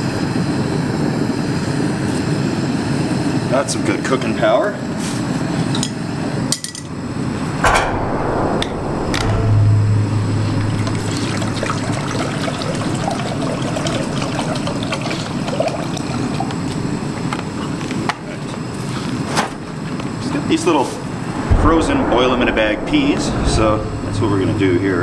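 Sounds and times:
low hum: 7.4 - 13.5, 21.0 - 25.0
knocks: 7.6 - 12.0
water pouring into a metal pot: 11.3 - 16.5.

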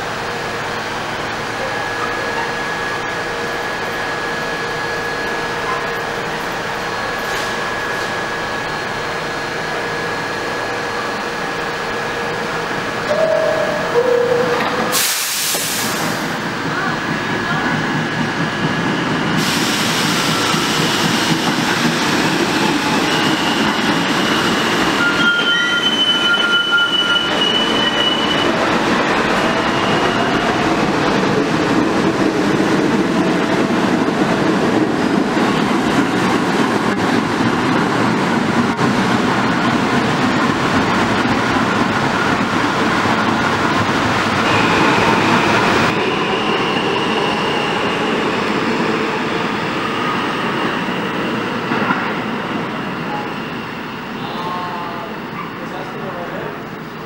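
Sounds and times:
subway train rumbling past: 0.0 - 57.0
high wheel squeals: 22.6 - 30.8.

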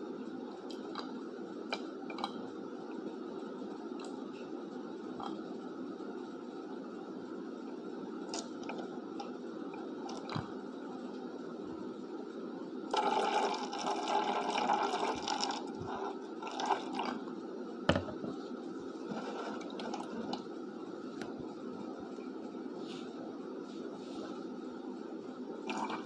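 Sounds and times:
knocks on glass jar: 17.9 - 18.2.

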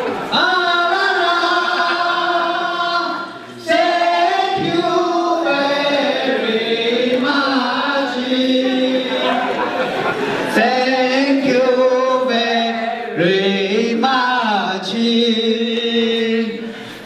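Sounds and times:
group of voices singing: 0.0 - 17.0.

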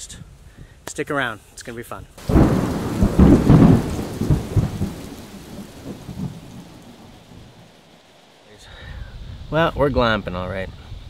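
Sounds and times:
thunder rumble: 2.2 - 7.8
rain hissing: 2.2 - 11.0.

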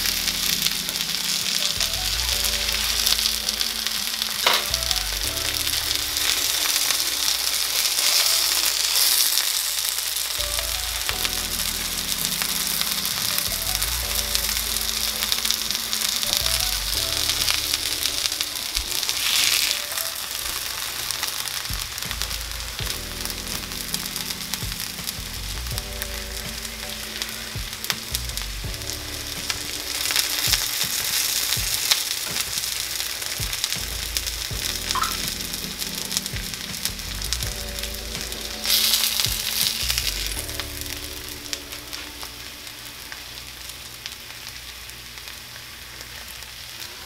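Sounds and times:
meat sizzling in oil: 0.0 - 47.0.

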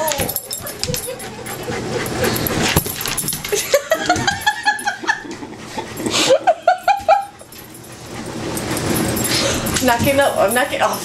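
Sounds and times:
person laughing: 3.5 - 7.3.

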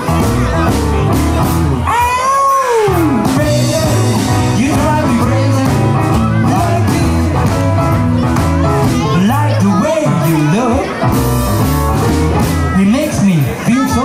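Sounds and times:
rock and roll band playing: 0.0 - 14.0
man wailing: 1.8 - 3.2.

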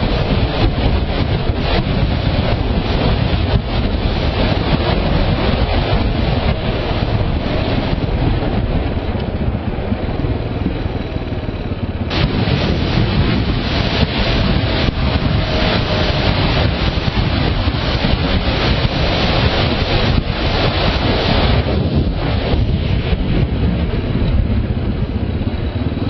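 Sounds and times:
motorcycle engine running: 0.0 - 26.0
wind rushing over microphone: 0.0 - 26.0.

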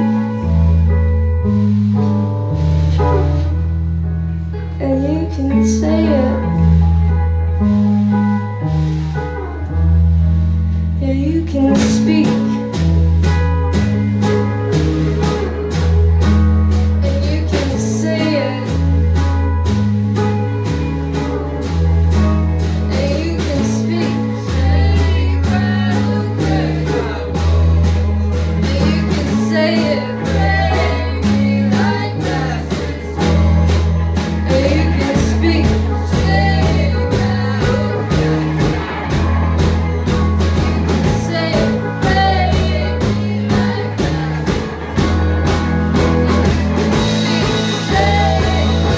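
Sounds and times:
bass line: 0.0 - 48.9
drum kit: 0.0 - 48.9
electric guitars: 0.0 - 48.9
person singing: 22.8 - 39.2, 40.0 - 45.2, 46.3 - 48.9.

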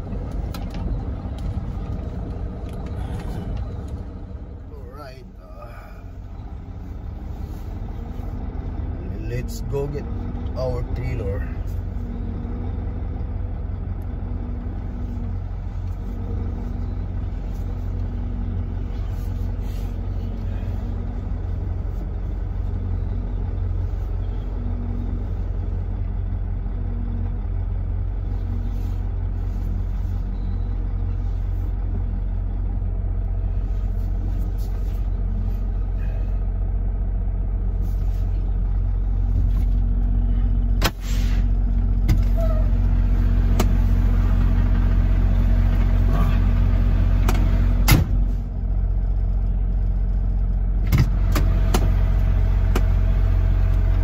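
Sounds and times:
diesel truck engine rumble: 0.0 - 54.0.

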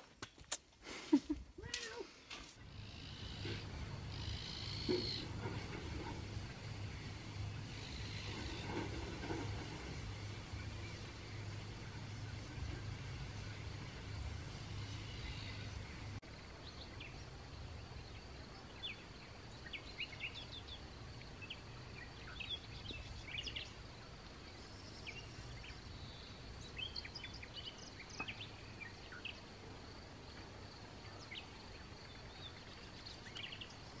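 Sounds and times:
birds chirping: 1.2 - 23.8.

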